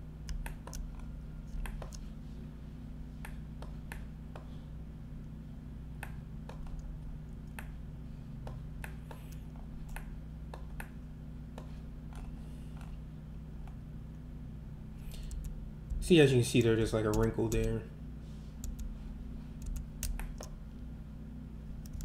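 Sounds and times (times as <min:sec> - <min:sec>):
steady low hum: 0:00.0 - 0:22.0
computer mouse and keyboard clicks: 0:00.3 - 0:02.1, 0:06.0 - 0:07.8, 0:08.5 - 0:11.0, 0:15.0 - 0:15.6, 0:16.5 - 0:17.8, 0:18.6 - 0:18.9, 0:19.6 - 0:20.6, 0:21.8 - 0:22.0.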